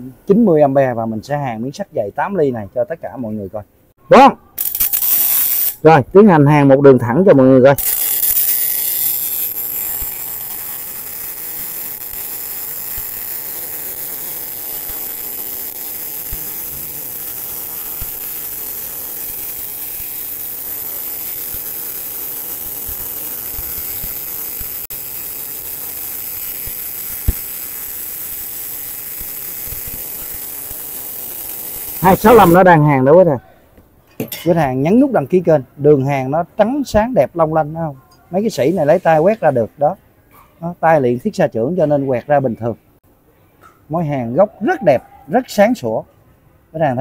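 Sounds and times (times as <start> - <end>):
welding arc hissing: 4.6 - 5.9, 7.7 - 33.0, 38.5 - 39.5.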